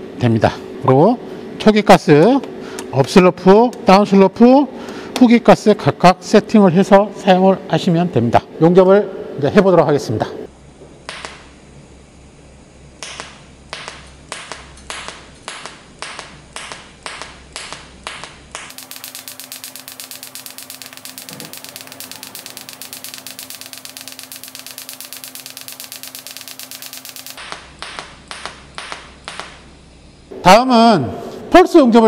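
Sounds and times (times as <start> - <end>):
welding arc clicks: 11.0 - 11.6, 13.0 - 29.8
welding arc buzzing: 11.0 - 11.8, 12.9 - 30.4.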